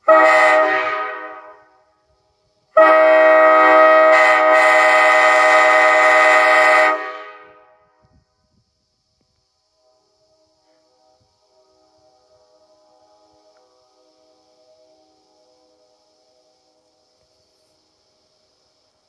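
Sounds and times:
train horn blasts: 0.0s - 2.1s, 2.7s - 8.1s, 9.8s - 16.1s.

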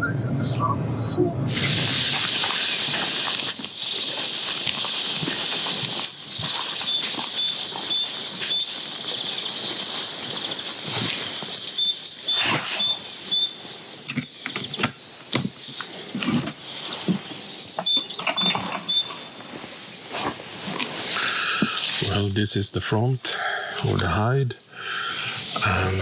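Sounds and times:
birds chirping: 0.4s - 26.0s
footsteps in grass: 1.5s - 13.2s.

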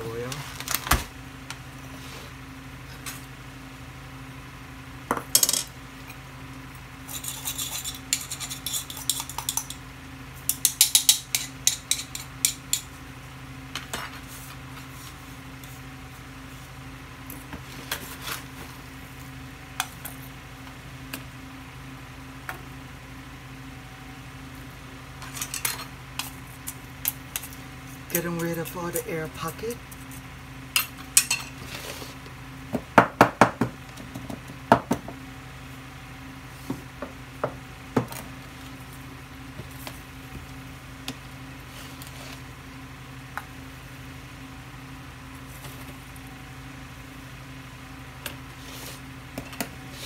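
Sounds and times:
steady low hum: 0.0s - 50.0s.

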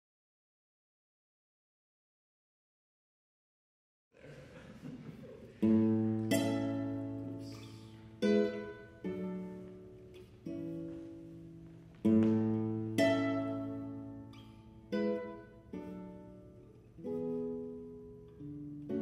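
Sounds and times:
faint room noise: 4.2s - 19.0s
classical guitar chords: 4.3s - 19.0s.

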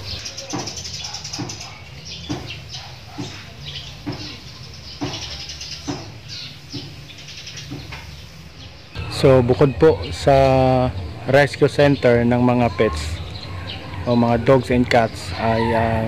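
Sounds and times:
dogs barking: 0.0s - 7.0s, 10.0s - 16.0s
steady low hum: 6.0s - 16.0s.

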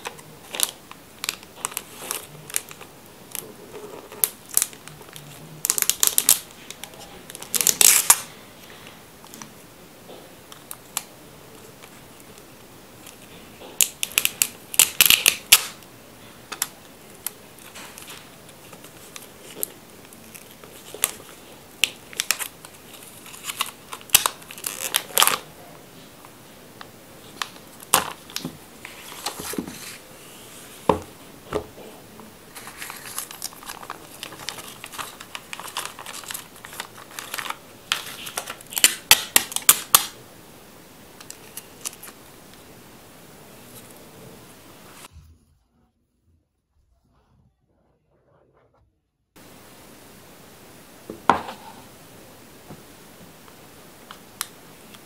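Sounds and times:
plastic wrap crinkling and tearing: 0.0s - 8.4s, 10.1s - 15.8s, 16.5s - 25.7s, 27.2s - 31.0s, 31.8s - 40.2s, 41.2s - 42.2s.

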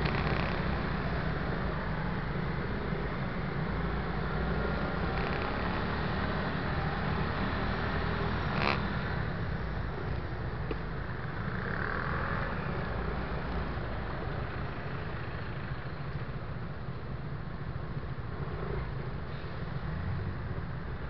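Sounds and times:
surrounding traffic noise: 0.0s - 21.0s.

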